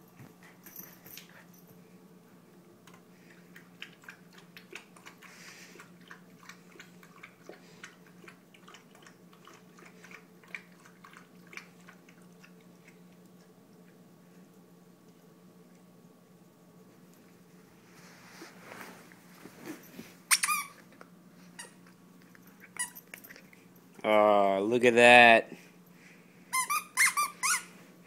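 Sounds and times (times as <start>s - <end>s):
puppy lapping water: 3.2s - 14.0s.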